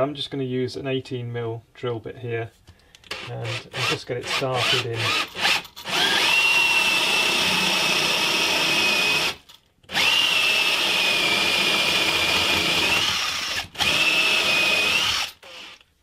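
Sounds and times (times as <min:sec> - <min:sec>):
cordless drill boring into wood: 0:03.1 - 0:15.8.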